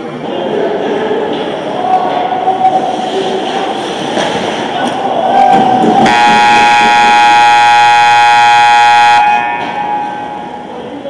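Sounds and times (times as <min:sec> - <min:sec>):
ice rink game noise: 0:00.0 - 0:11.0
scoreboard horn blast: 0:06.1 - 0:09.8.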